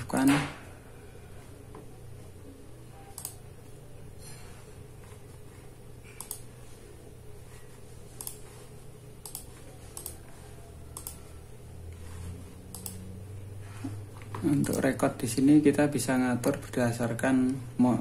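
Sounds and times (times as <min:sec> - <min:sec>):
steady low hum: 0:00.0 - 0:18.0
mouse clicks: 0:03.1 - 0:03.4, 0:06.1 - 0:06.5, 0:08.2 - 0:08.4, 0:09.2 - 0:10.2, 0:10.9 - 0:11.3, 0:12.7 - 0:13.1.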